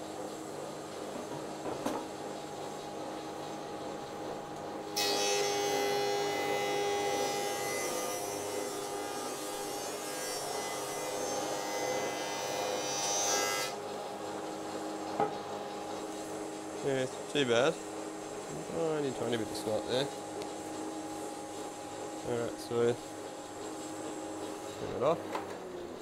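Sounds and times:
high-pitched wood planing: 5.0 - 13.9.

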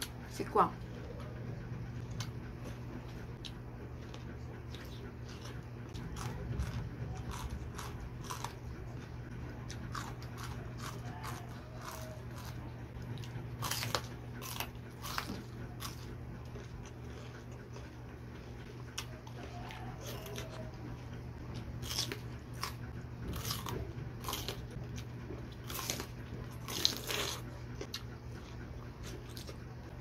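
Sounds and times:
steady low hum: 0.0 - 30.0
crunchy chewing: 0.8 - 30.0.

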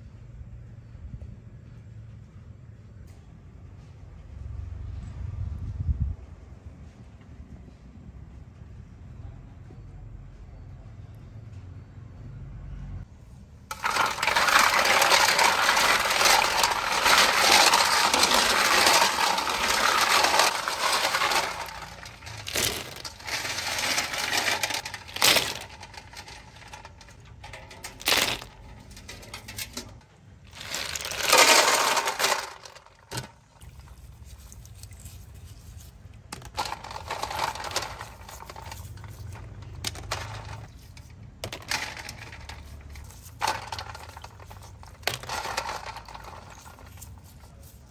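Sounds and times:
snail shells clattering: 13.7 - 47.9.

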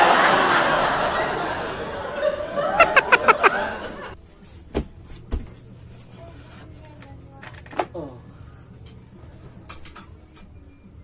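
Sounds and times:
people laughing: 0.0 - 4.2.

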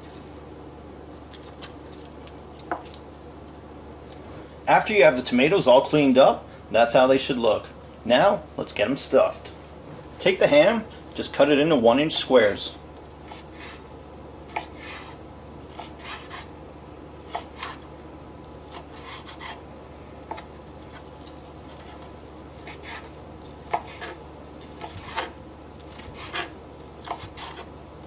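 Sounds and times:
knife chopping on wooden board: 14.5 - 16.5, 17.3 - 17.8, 22.6 - 27.7.

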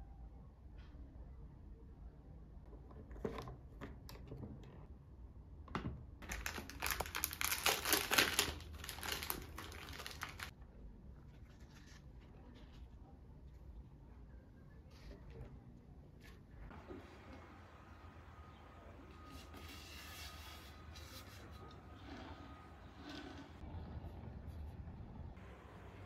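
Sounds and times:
packaging crinkling: 6.2 - 10.5.

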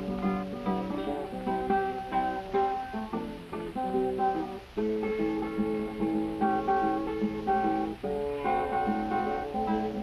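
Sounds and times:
acoustic guitar music: 0.0 - 10.0.

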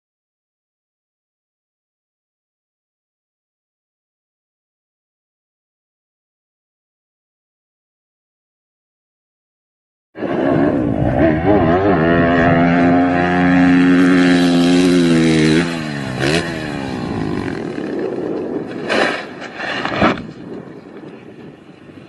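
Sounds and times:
dirt bike engine revving: 10.2 - 19.7.

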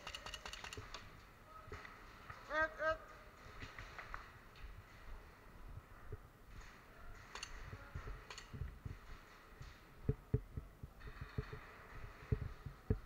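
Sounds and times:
sharp clicks: 0.0 - 1.1, 7.2 - 8.7.

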